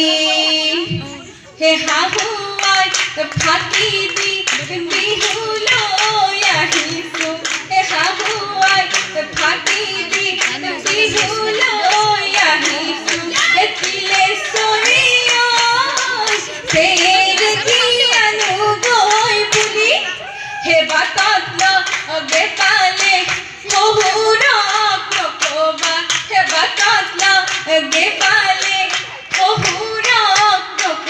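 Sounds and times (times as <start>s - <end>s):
women singing together: 0.0s - 31.0s
rhythmic clapping: 1.6s - 31.0s.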